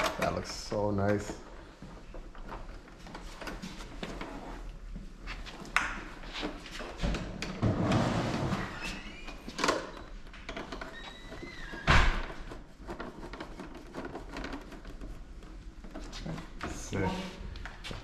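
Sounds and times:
plastic rubbing and scuffing: 0:11.4 - 0:18.0.

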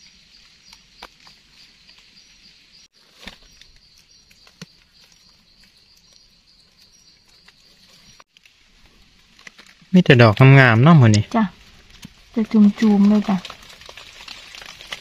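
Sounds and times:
leaf litter rustling: 0:02.9 - 0:06.1, 0:06.7 - 0:15.0.

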